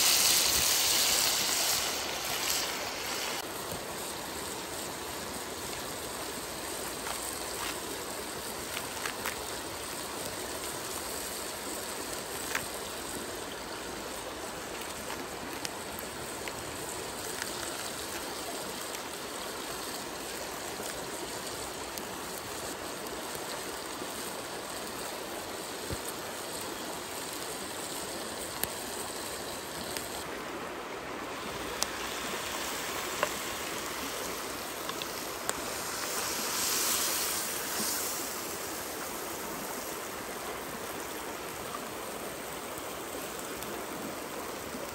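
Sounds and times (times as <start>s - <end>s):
stream babbling: 0.0s - 44.9s.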